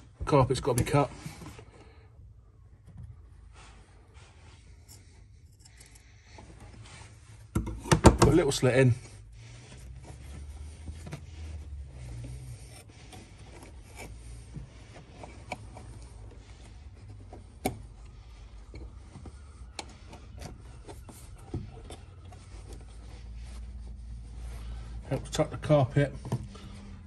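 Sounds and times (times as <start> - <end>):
hands scuffing carpet: 22.1 - 27.0.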